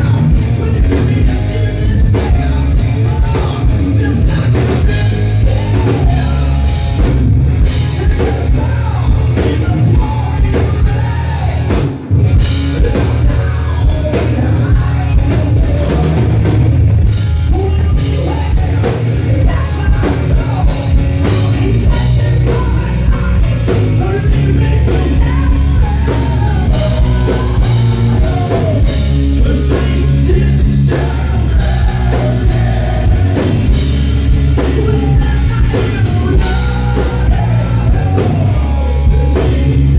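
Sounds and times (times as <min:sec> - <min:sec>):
drum kit: 0:00.0 - 0:39.9
electric guitar: 0:00.0 - 0:39.9.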